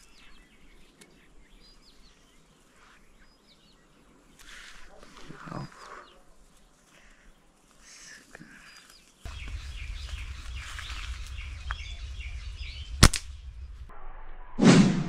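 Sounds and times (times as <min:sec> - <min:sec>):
faint bird chirps: 0:00.0 - 0:13.8
low rumble on microphone: 0:09.3 - 0:15.0
sharp crack: 0:09.3 - 0:15.0.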